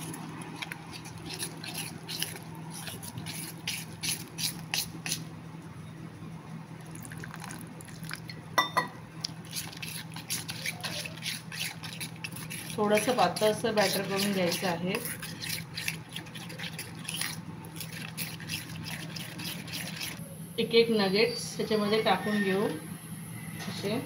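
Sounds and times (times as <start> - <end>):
spoon stirring wet batter: 0.0 - 5.3, 9.2 - 20.2
low steady hum: 0.0 - 24.0
spoon clinking against metal bowl: 8.3 - 9.0.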